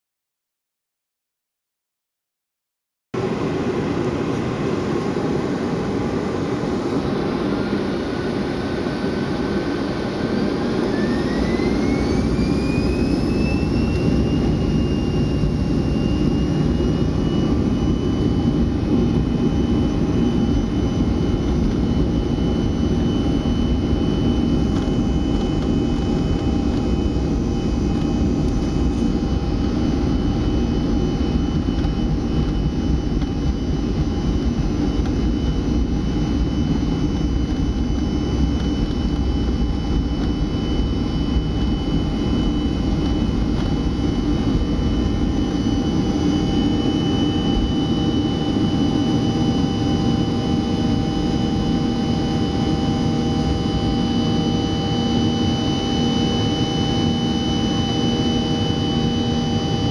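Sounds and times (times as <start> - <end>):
jet engines spooling up in cabin: 3.2 - 59.9.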